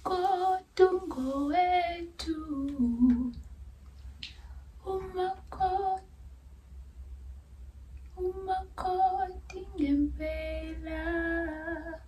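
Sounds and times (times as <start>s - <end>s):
woman singing unaccompanied: 0.0s - 3.5s, 4.8s - 6.1s, 8.1s - 12.0s.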